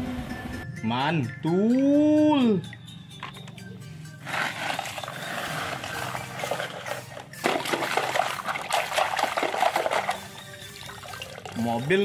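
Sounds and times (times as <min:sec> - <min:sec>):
wet sand squelching: 0:04.2 - 0:10.3
water sloshing and splashing: 0:04.2 - 0:12.0.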